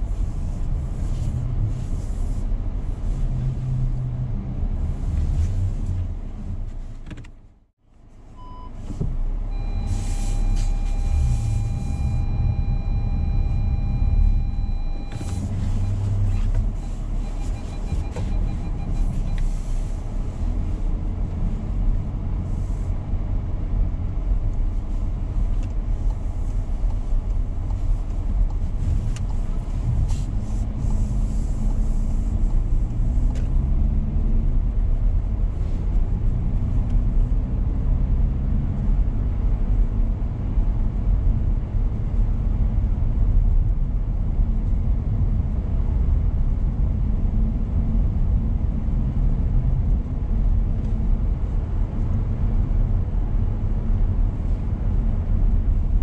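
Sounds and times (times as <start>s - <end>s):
car engine and road noise: 0.0s - 56.0s
electronic beep tone: 9.5s - 19.4s
pulsed beeps: 9.5s - 19.5s.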